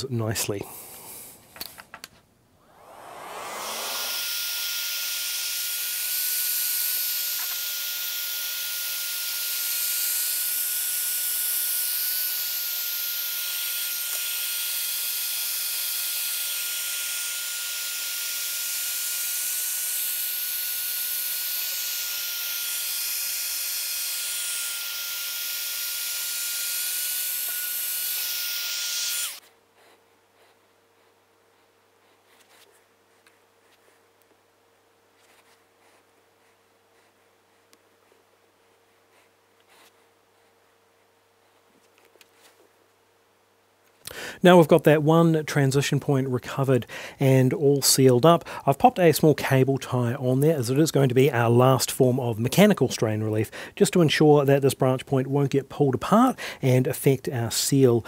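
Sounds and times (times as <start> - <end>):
heat gun blowing air: 2.6 - 29.4.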